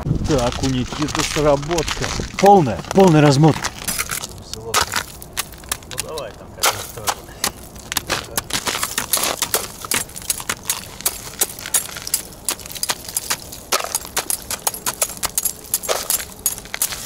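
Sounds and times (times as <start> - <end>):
ice chunks clinking: 0.6 - 17.0
ice chisel chopping ice: 3.9 - 17.0.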